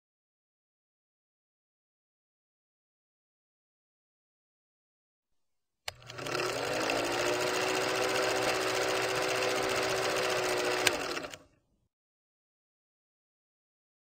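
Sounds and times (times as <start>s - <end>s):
film projector clattering: 5.9s - 11.5s
sharp click: 10.8s - 11.4s.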